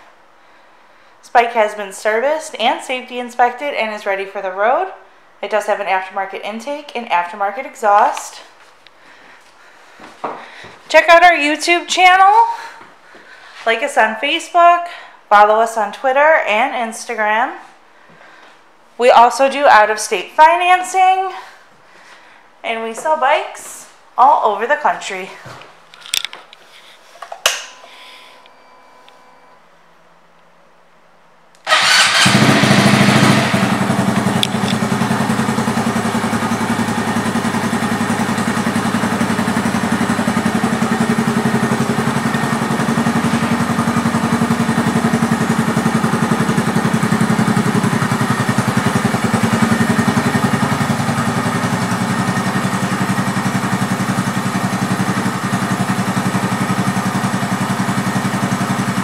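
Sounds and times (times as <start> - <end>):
motorcycle engine starting and idling: 31.6 - 59.0.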